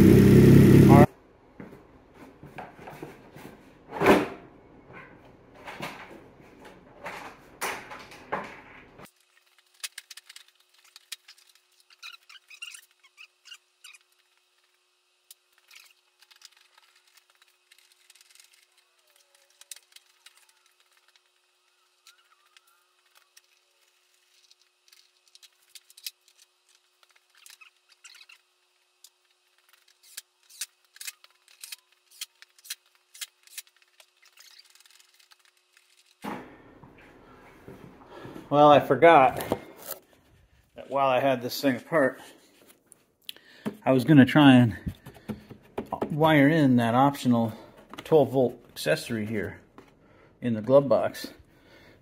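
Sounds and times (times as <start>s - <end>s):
hands handling small parts: 9.1s - 36.2s
knocks and rattles of handled parts: 44.8s - 46.2s.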